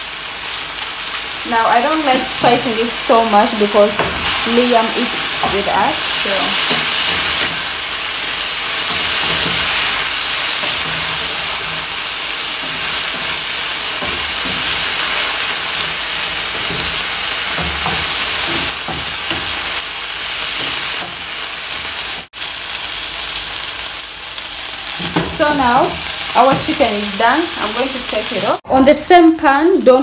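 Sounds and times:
chicken sizzling in hot oil: 0:00.0 - 0:30.0.

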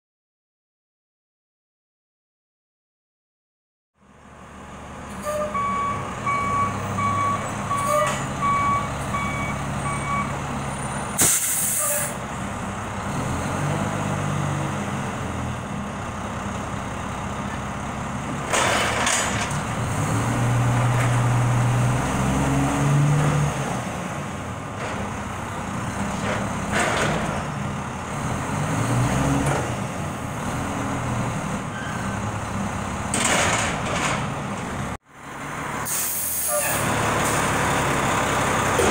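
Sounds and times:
diesel engine revving: 0:04.2 - 0:38.9
reversing beeps: 0:05.2 - 0:10.4
air brake hiss: 0:11.2 - 0:12.2, 0:35.8 - 0:37.4.

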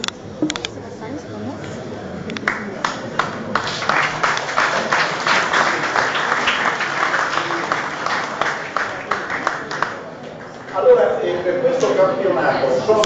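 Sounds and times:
audience applauding: 0:02.4 - 0:10.8.

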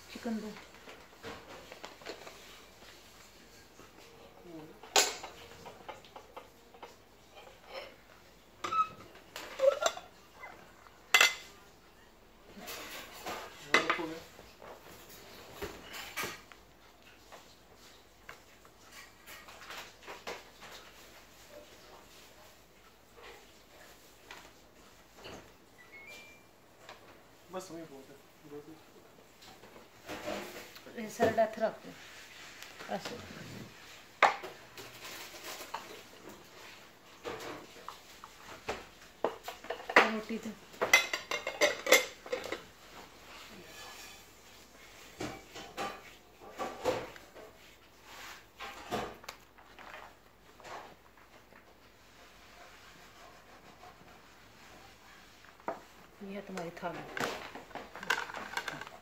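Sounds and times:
plates and glass bowl clinking: 0:04.8 - 0:11.6, 0:38.7 - 0:44.4
dishes knocking and clattering: 0:04.8 - 0:11.7, 0:12.5 - 0:16.6, 0:29.4 - 0:31.5, 0:34.1 - 0:47.6, 0:48.6 - 0:51.6, 0:56.9 - 0:59.0.

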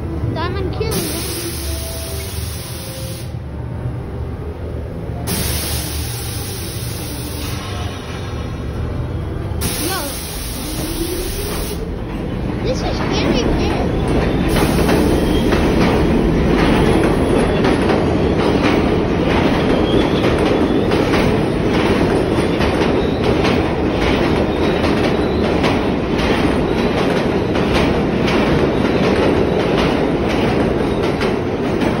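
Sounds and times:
subway train wheels rumbling: 0:00.0 - 0:32.0
wheels clacking over rail joints: 0:10.8 - 0:32.0.

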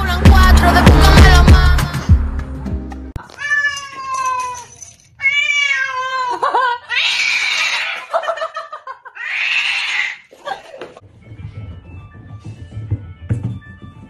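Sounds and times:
cat yowling: 0:03.2 - 0:08.1, 0:09.2 - 0:10.3.

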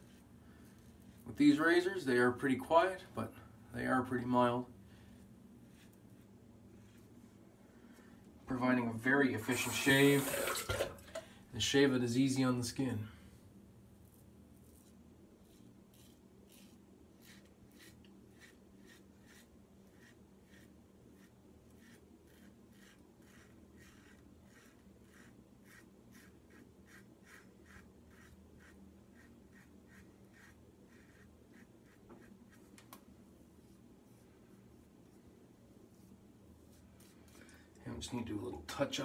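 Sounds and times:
razor scraping stubble: 0:14.0 - 0:32.8.

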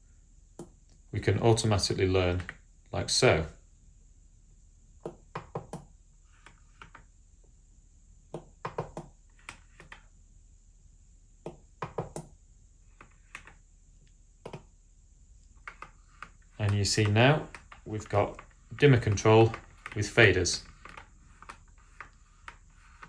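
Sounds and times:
plastic faders sliding: 0:15.6 - 0:23.0.

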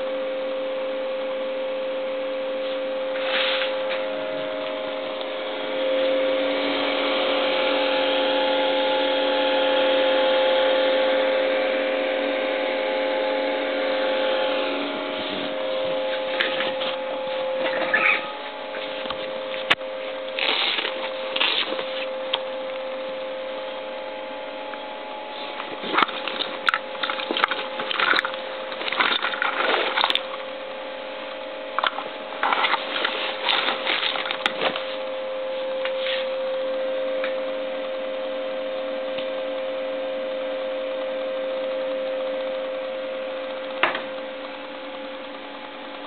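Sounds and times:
electrical hum: 0:00.0 - 0:46.0
rustling of cover and cables: 0:15.2 - 0:22.2, 0:25.3 - 0:30.5, 0:31.8 - 0:36.3.

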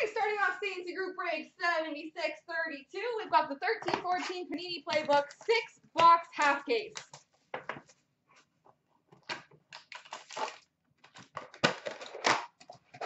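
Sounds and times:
foil wrapper crinkling and tearing: 0:09.7 - 0:13.0.

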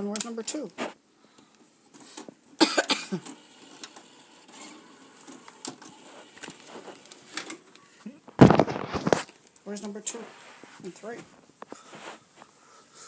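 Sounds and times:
scuffing noise: 0:00.8 - 0:01.0, 0:10.1 - 0:12.6
rustling: 0:03.9 - 0:13.0.

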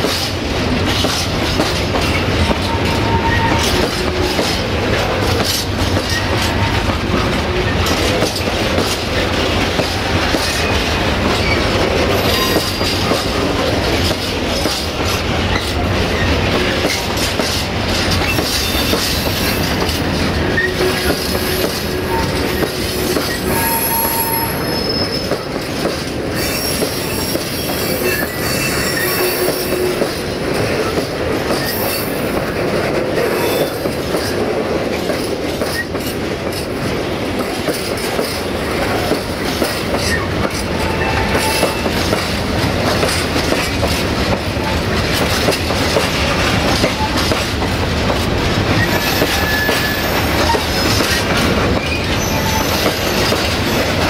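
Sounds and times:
steel wheels rumbling on rail: 0:00.0 - 0:54.0
wheel squeals: 0:02.1 - 0:03.9, 0:20.4 - 0:25.5, 0:26.3 - 0:30.0, 0:48.8 - 0:53.9.

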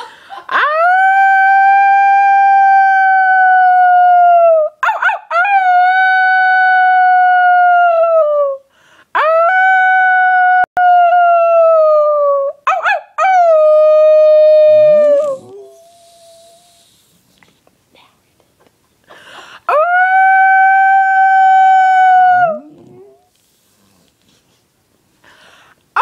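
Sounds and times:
long drawn-out howls: 0:19.7 - 0:23.3.

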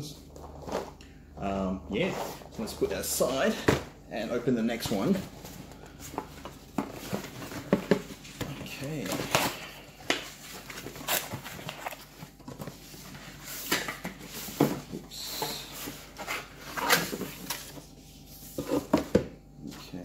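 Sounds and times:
cardboard rustling and scraping: 0:02.0 - 0:03.9, 0:04.7 - 0:19.2.

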